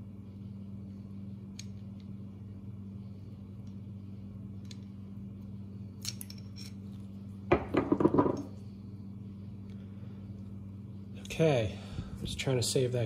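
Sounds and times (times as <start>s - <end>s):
steady low hum: 0.0s - 13.0s
small metal parts clinking: 6.0s - 6.9s.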